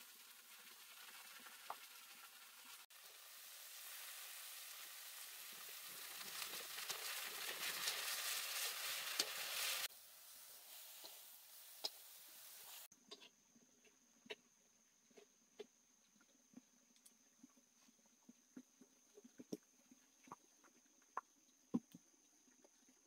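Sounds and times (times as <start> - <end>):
crackles and pops: 0.0 - 9.9, 15.1 - 23.0
steady hiss: 0.0 - 12.9.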